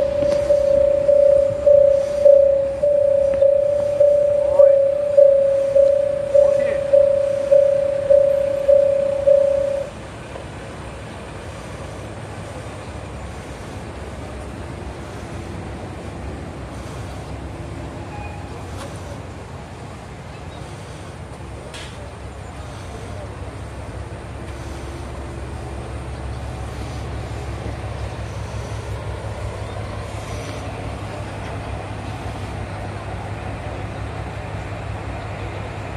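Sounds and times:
bell tone ringing: 0:00.0 - 0:09.9
diesel railcar engine rumbling: 0:00.0 - 0:35.9.

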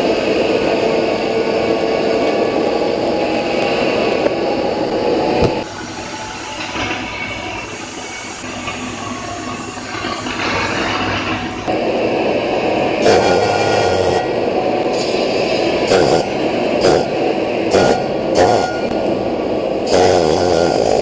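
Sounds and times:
workshop noise: 0:00.0 - 0:21.0
welding arc crackling: 0:13.0 - 0:14.5, 0:15.9 - 0:19.0, 0:19.9 - 0:21.0.

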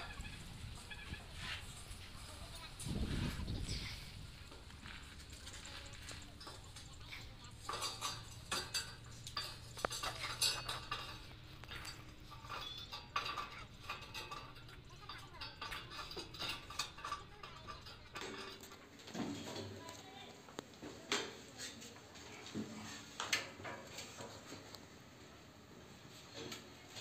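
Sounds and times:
metallic clinks on iron ladder: 0:05.4 - 0:19.7.

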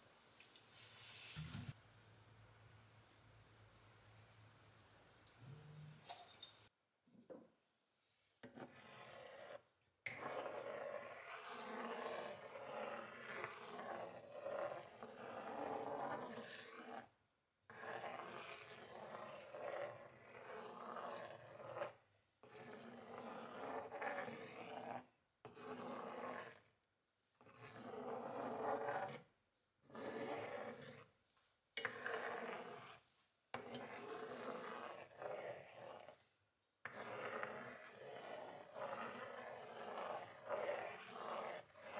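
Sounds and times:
spatula scraping frying pan: 0:08.4 - 0:17.1, 0:17.7 - 0:26.7, 0:27.4 - 0:29.3, 0:29.9 - 0:31.1, 0:31.8 - 0:41.9.

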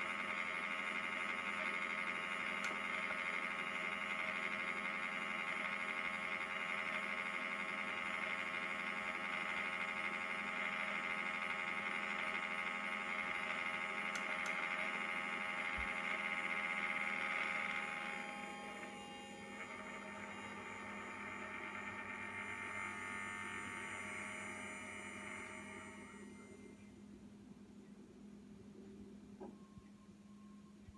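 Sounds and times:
high-pitched electric buzz: 0:03.5 - 0:26.7.

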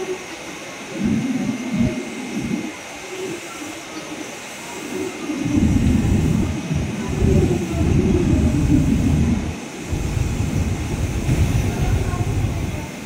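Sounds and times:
trains moving slowly: 0:00.0 - 0:13.0
wind buffeting microphone: 0:00.9 - 0:02.8, 0:05.2 - 0:13.0.

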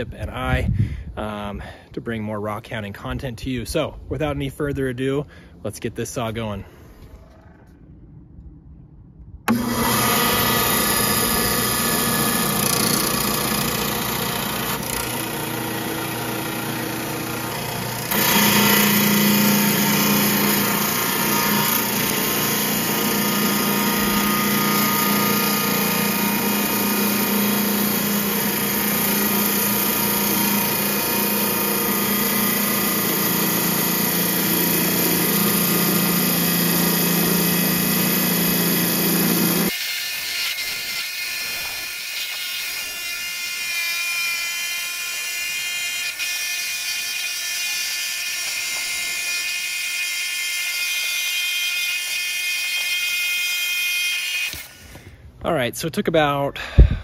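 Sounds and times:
slab saw motor humming: 0:09.5 - 0:55.0.

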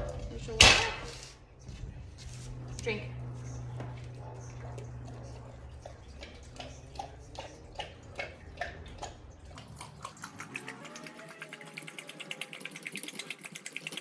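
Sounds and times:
dog lapping water from metal bowl: 0:04.2 - 0:14.0.

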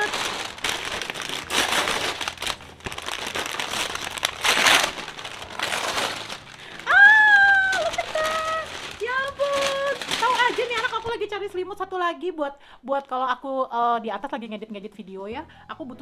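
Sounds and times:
wrapping paper tearing and crinkling: 0:00.0 - 0:11.6
woman's high-pitched exclamation: 0:06.8 - 0:10.0.

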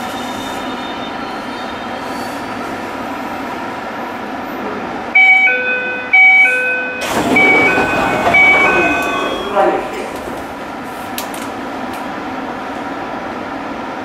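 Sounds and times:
train humming: 0:02.6 - 0:14.0
two-note door chime: 0:05.2 - 0:09.7
doors shutting: 0:05.2 - 0:11.4.

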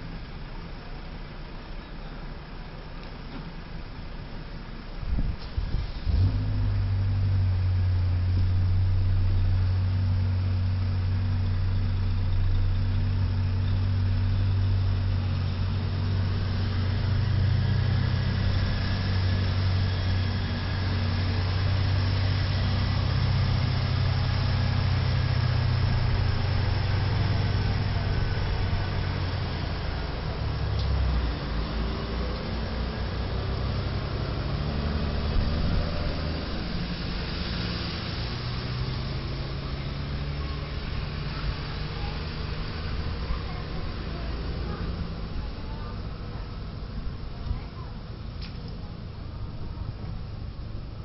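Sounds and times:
diesel truck engine running: 0:00.0 - 0:51.0.

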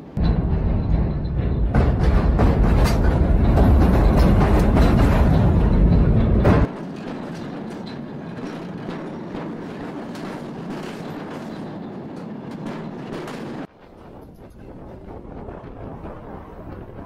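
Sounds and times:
freight train rumble: 0:00.0 - 0:17.0
deep rumble: 0:00.2 - 0:06.7
train wheels clacking over rail joints: 0:00.2 - 0:14.8.

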